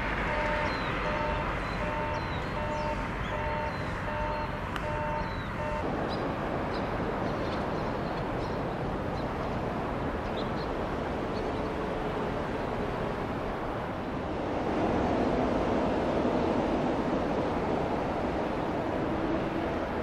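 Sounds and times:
steady rushing rumble: 0.0 - 20.0
two-tone electronic warning alarm: 0.2 - 5.9.

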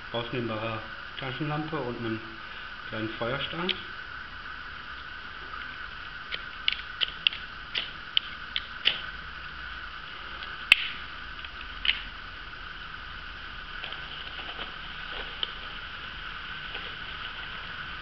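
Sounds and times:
sharp click: 6.3 - 9.0, 10.7 - 11.0.

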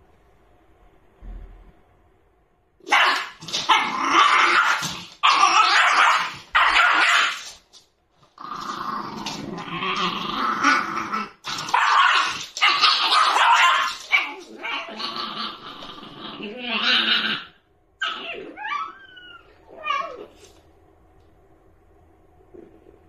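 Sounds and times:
puppy growling and barking: 2.8 - 20.5.

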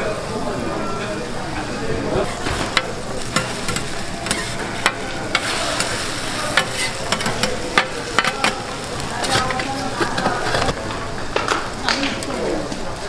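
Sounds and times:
eggs sizzling on a griddle: 0.0 - 13.0
metal spatula scraping griddle: 2.2 - 10.8.

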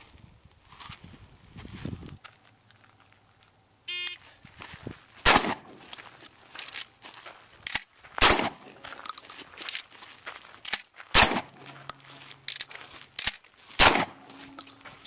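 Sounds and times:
shotgun shots: 5.2 - 5.8, 8.2 - 8.7, 11.1 - 11.7, 13.8 - 14.5.

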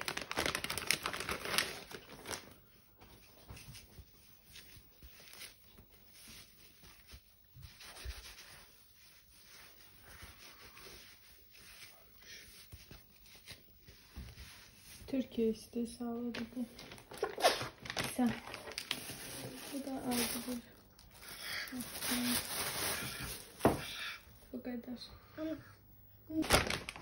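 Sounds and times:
plastic packaging crinkling: 0.0 - 2.6, 16.2 - 23.9, 26.3 - 27.0
bath mitt rustling: 3.0 - 23.8.

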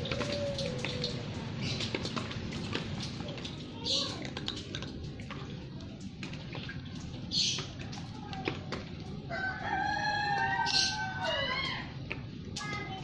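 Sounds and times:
rooster crowing: 9.3 - 11.8.

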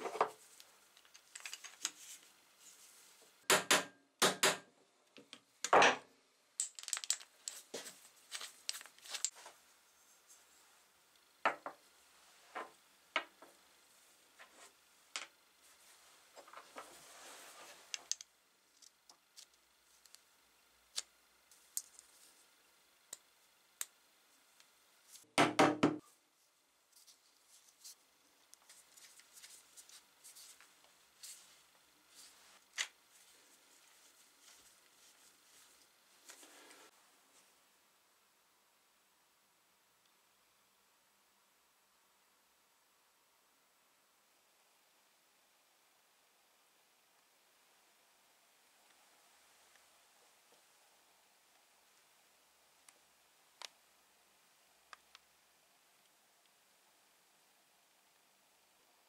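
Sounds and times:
soft rubbing: 1.9 - 3.4, 15.6 - 18.0
parts knocking on wooden workbench: 11.5 - 11.8, 25.4 - 26.0.

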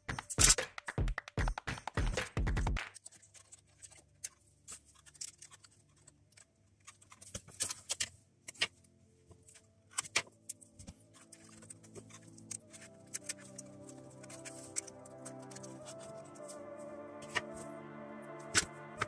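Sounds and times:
wooden strips clicking and tapping: 0.0 - 4.0
faint background music: 0.0 - 19.0.

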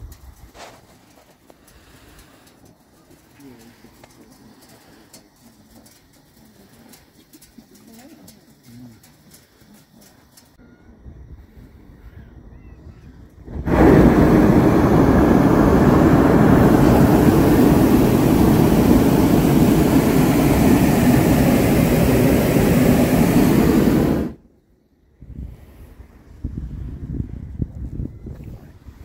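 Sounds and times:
propane burner firing: 0.0 - 8.6, 13.4 - 24.4.

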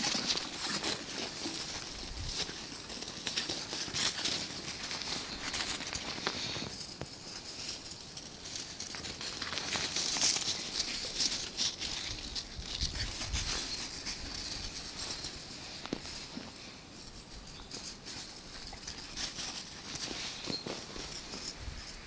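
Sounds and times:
footsteps crunching in snow: 0.0 - 16.8, 17.6 - 22.0.

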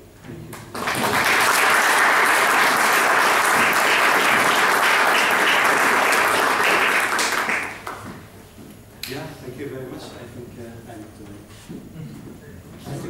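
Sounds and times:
audience applause: 0.6 - 8.1
speech: 9.0 - 13.0.

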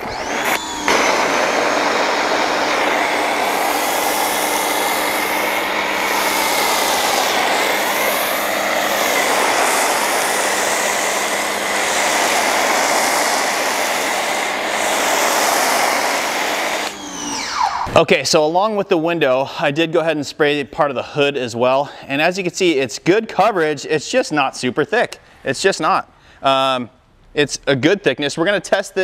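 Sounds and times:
foam cannon spraying hiss: 0.0 - 17.0
electric pressure washer running: 0.0 - 17.9.

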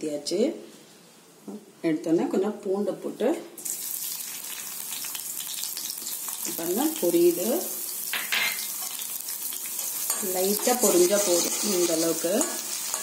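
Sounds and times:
garlic sizzling in hot oil: 3.6 - 13.0.

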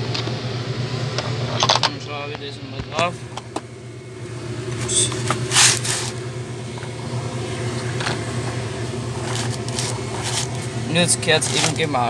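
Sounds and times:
engine drone: 0.0 - 12.0
metal cap scraping and grinding: 4.8 - 6.2, 9.2 - 10.7, 11.4 - 11.8.

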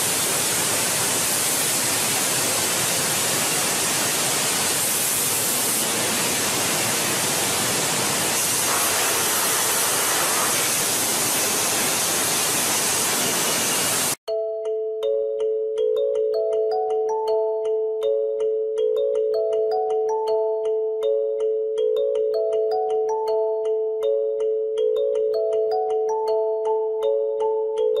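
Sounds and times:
air hissing: 0.0 - 14.2.

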